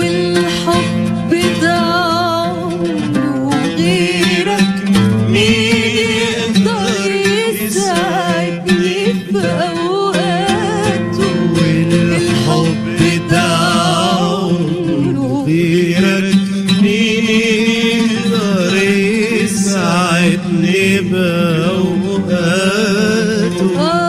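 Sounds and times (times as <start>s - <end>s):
woman singing ornamented melody: 0.0s - 15.6s, 23.6s - 24.0s
instrumental accompaniment: 0.0s - 24.0s.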